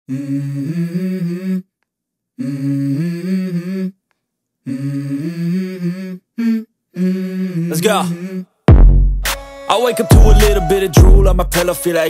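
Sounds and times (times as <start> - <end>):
person humming: 0.1 - 1.7, 2.4 - 4.0, 4.6 - 8.5, 10.0 - 11.7.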